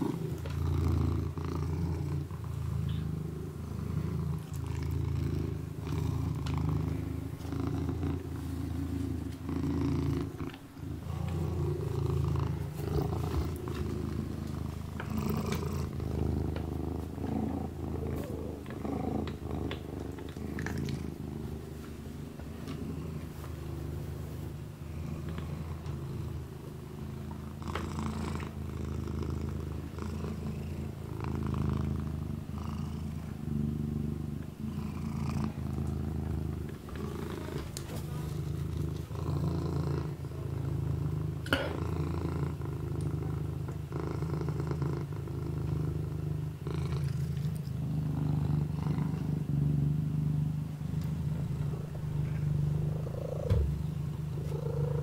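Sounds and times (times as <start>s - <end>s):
kitten purring: 0.0s - 55.0s
soft licking: 5.8s - 23.7s, 46.9s - 48.2s.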